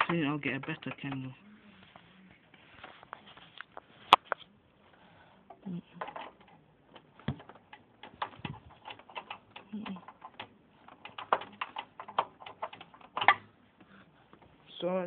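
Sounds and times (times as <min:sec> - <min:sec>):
computer parts clicking and tapping: 0:00.0 - 0:01.3, 0:05.5 - 0:13.5.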